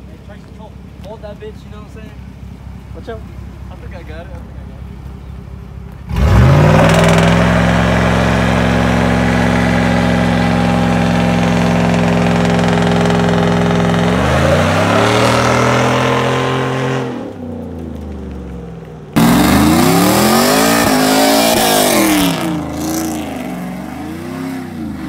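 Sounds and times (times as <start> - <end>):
car engine revving: 6.0 - 25.0.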